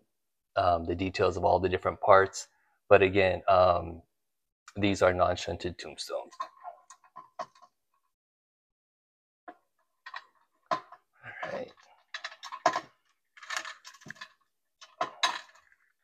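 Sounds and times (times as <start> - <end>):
wires clicking and rattling in metal fixture: 9.5 - 16.0.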